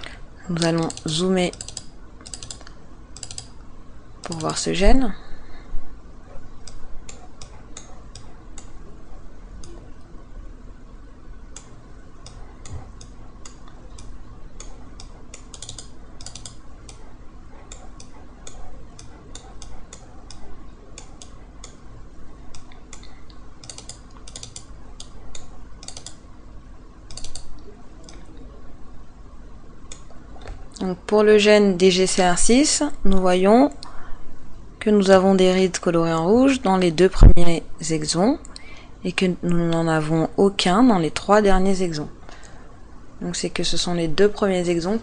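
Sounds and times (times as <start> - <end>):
faint steady hum: 0.0 - 45.0
computer mouse clicking: 0.6 - 3.6, 4.2 - 4.7, 6.5 - 8.8, 9.6 - 9.8, 11.5 - 26.2, 27.1 - 28.3, 29.9 - 30.8
scroll wheel ticking: 0.6 - 3.6, 6.5 - 10.1, 11.5 - 26.3, 27.0 - 28.3.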